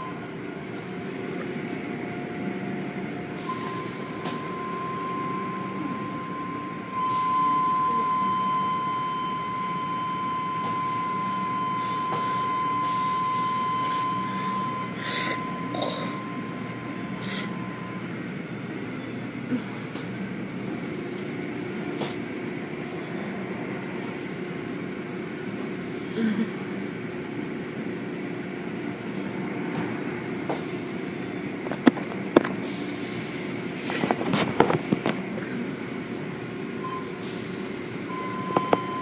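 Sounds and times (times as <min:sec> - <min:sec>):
steady high whine: 0:00.0 - 0:19.5
car wash machinery running: 0:00.0 - 0:39.0.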